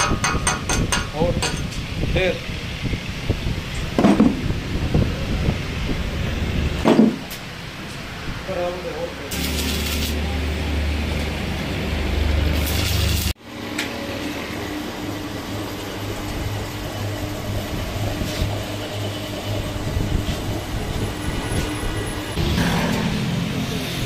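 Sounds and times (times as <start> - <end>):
metal lathe humming: 9.3 - 22.5
loud low hum: 9.3 - 24.0.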